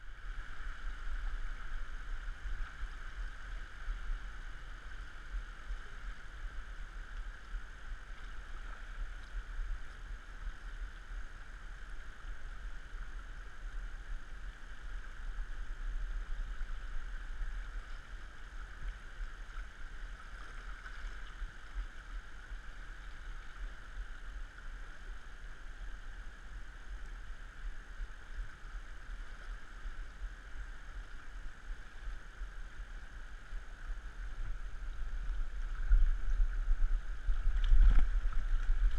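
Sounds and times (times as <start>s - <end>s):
low rumble: 33.5s - 38.9s.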